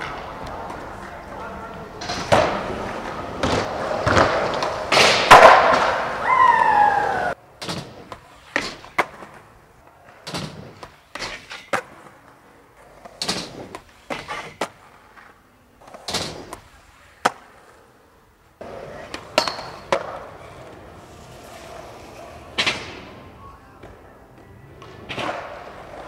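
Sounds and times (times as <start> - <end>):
skateboard wheels rolling: 0.0 - 26.0
skateboard popping and landing: 2.0 - 6.2, 7.6 - 17.7, 18.6 - 20.9, 24.8 - 26.0.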